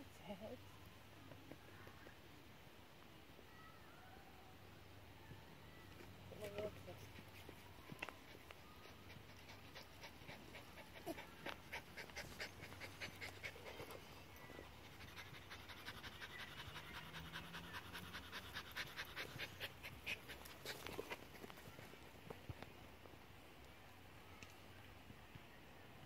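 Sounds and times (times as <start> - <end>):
small dog panting: 6.4 - 21.9.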